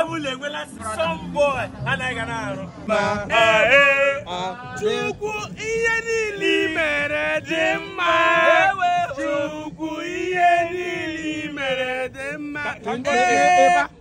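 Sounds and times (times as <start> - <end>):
man singing long notes: 2.9 - 14.0.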